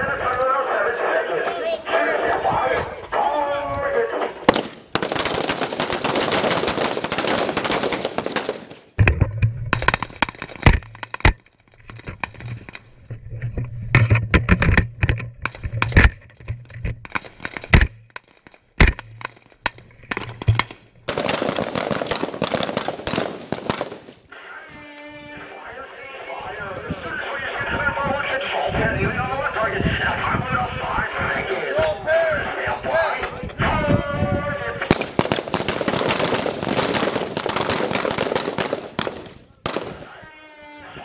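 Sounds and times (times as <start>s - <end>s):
many rifles firing at once: 4.4s - 8.9s, 20.1s - 24.2s, 34.9s - 40.3s
sharp single rifle shots: 4.5s - 5.9s.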